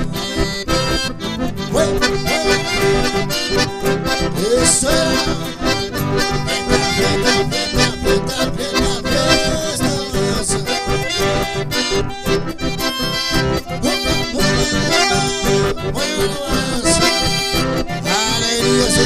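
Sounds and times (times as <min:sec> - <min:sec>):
button accordions playing: 0:00.0 - 0:19.0
strummed acoustic guitar: 0:00.0 - 0:19.0
man singing: 0:01.6 - 0:03.2, 0:04.3 - 0:05.8, 0:06.5 - 0:11.7, 0:13.8 - 0:19.0.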